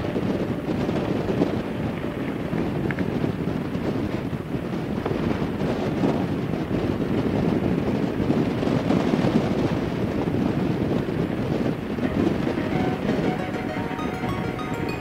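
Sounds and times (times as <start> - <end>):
wind buffeting microphone: 0.0 - 13.4.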